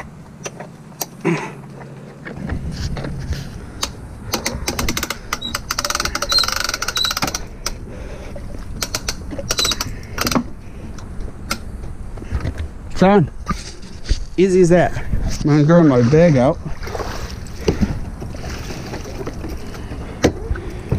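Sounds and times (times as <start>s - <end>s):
winch ratchet clicking: 3.8s - 7.8s, 8.8s - 10.4s.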